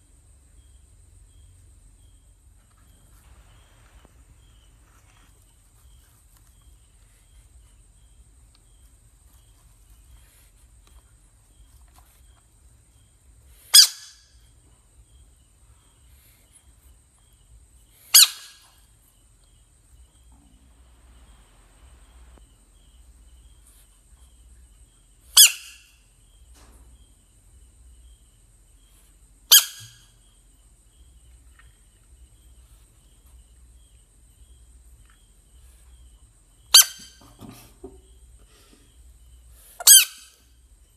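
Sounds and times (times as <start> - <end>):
frog squeaks: 13.7 - 14.2, 18.1 - 18.7, 25.4 - 26.0, 29.5 - 30.1, 36.7 - 37.2, 39.8 - 40.4.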